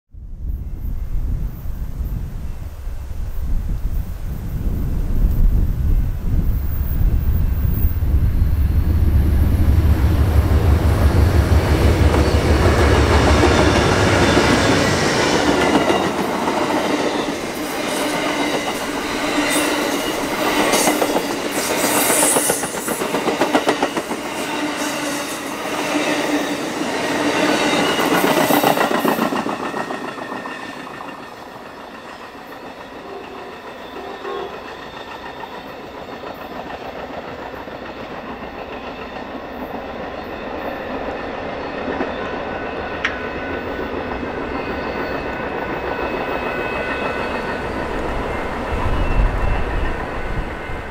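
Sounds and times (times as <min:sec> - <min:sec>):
faint train rumble: 0:00.2 - 0:50.9
diesel locomotive engines passing: 0:00.4 - 0:50.9
train wheels clacking over rail joints: 0:10.6 - 0:48.0.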